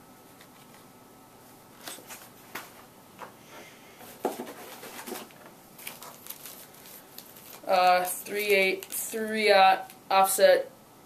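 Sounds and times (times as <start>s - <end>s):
plastic packages rustling: 4.0s - 10.0s.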